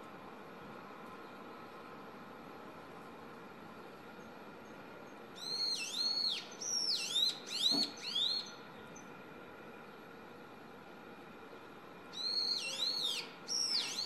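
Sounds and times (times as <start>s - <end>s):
faint steady hum: 0.0s - 14.0s
bird whistled song: 5.4s - 8.6s, 12.1s - 14.0s.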